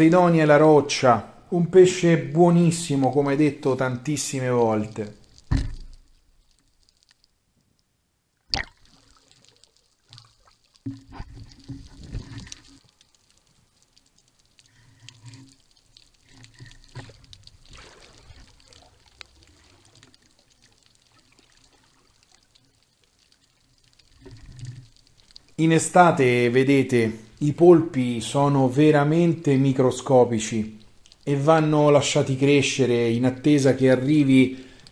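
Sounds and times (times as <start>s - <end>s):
faint underwater liquid sounds: 0.0s - 34.9s
sharp click underwater: 8.5s - 8.9s.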